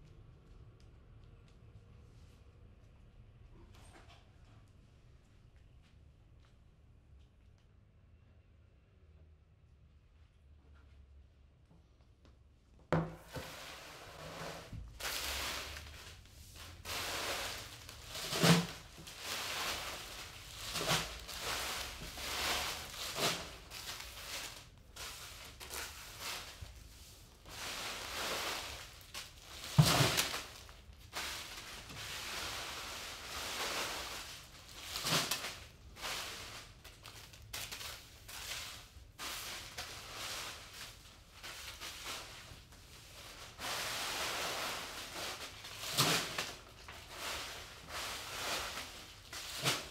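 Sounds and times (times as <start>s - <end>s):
wrappers crinkling: 14.8s - 49.9s.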